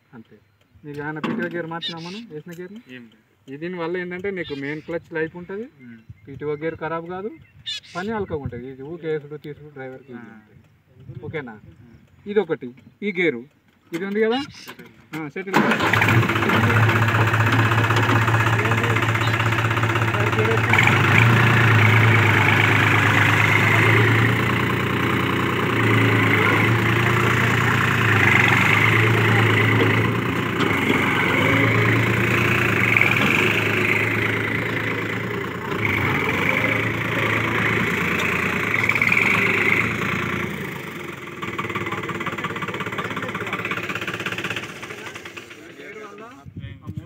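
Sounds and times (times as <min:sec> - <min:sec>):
tractor diesel engine under load: 0:01.3 - 0:02.2, 0:15.5 - 0:46.2.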